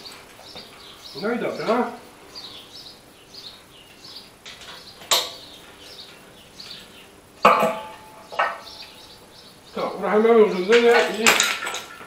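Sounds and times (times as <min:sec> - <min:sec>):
bird chirping: 0:00.0 - 0:12.0.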